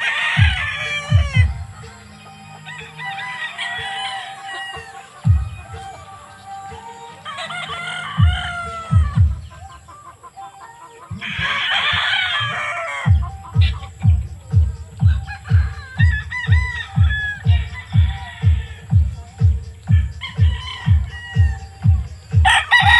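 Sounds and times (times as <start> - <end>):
music with bass drum beat: 0.0 - 2.3, 4.8 - 6.1, 8.1 - 9.8, 13.0 - 22.9
roosters crowing: 0.0 - 22.9.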